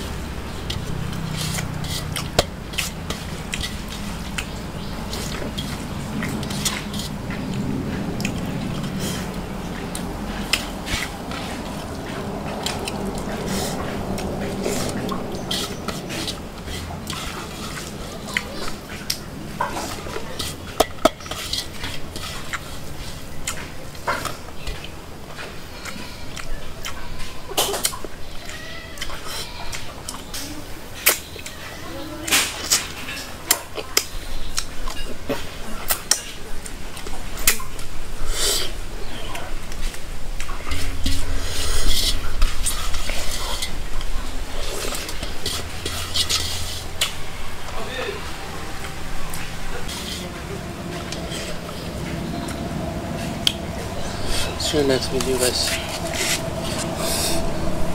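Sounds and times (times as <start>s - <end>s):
chewing: 0.0s - 57.9s
fingers scraping rice on plate: 0.6s - 9.3s, 10.0s - 24.8s, 40.6s - 47.3s, 49.3s - 52.6s.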